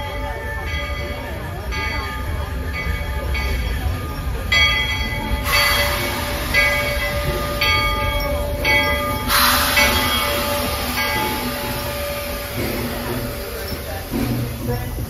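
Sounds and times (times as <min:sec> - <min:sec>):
locomotive bell ringing: 0:00.0 - 0:15.0
steam locomotive rumbling: 0:00.0 - 0:15.0
loud steam hiss: 0:05.0 - 0:15.0.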